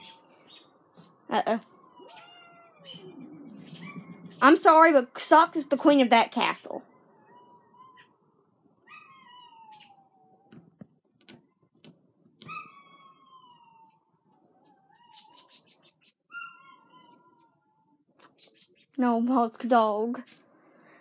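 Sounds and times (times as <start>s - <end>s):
cat meowing: 1.8s - 3.2s, 7.1s - 8.2s, 8.8s - 10.6s, 12.4s - 15.4s, 16.3s - 18.0s.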